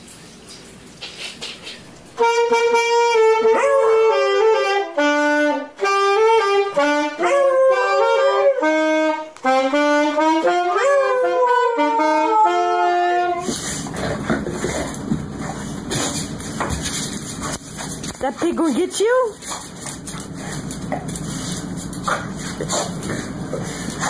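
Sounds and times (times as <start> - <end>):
saxophone melody: 2.1 - 13.9
dog howling: 7.2 - 8.8, 10.7 - 13.4.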